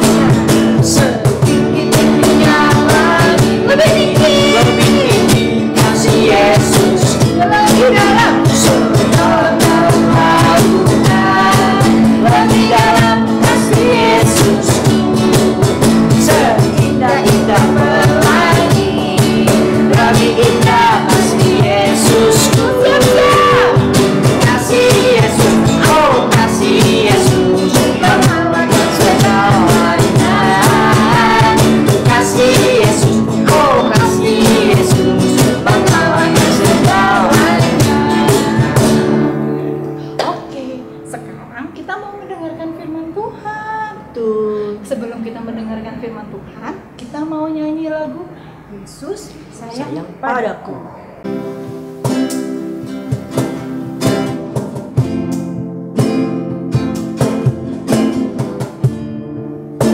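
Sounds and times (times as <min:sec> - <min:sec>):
group singing worship song: 0:00.0 - 0:40.1
strummed acoustic guitars: 0:00.0 - 0:44.2, 0:51.2 - 0:59.9.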